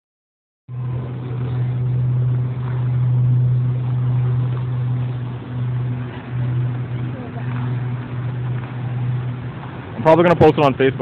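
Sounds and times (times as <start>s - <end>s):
steady low hum: 0.7s - 11.0s
wash of noise: 0.7s - 11.0s.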